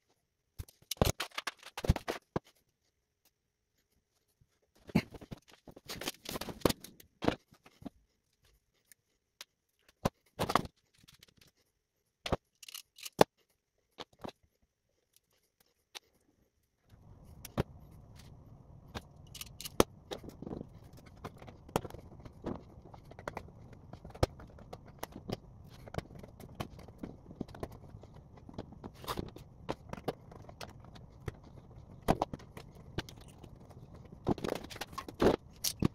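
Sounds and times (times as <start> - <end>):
small parts being handled: 0.6 - 2.5, 12.2 - 13.4, 16.9 - 35.9
wire strippers clicking and snipping: 12.2 - 13.3, 18.9 - 35.9
steady low hum: 16.9 - 35.9.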